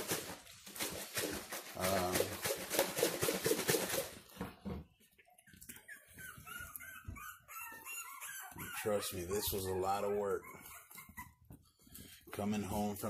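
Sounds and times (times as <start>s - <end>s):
puppies scuffling and pattering: 0.0s - 13.0s
puppies squeaking and whimpering: 5.1s - 12.2s.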